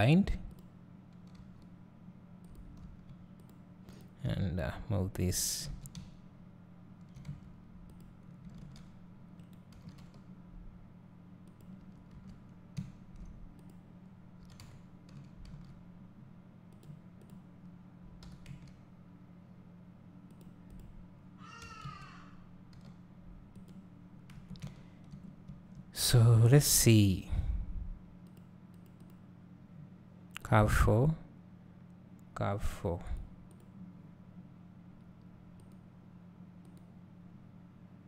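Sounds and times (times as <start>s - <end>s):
steady low hum: 0.0s - 38.0s
computer mouse clicks: 2.4s - 4.1s, 7.0s - 10.3s, 11.4s - 13.8s, 16.7s - 18.8s, 20.3s - 21.0s, 22.7s - 25.9s, 28.2s - 29.2s, 33.4s - 33.7s, 35.6s - 35.8s, 36.6s - 36.9s
faint computer keyboard clicks: 11.4s - 13.8s, 16.7s - 18.8s, 20.3s - 21.0s, 22.7s - 25.9s, 28.2s - 29.2s, 35.6s - 35.8s, 36.6s - 36.9s.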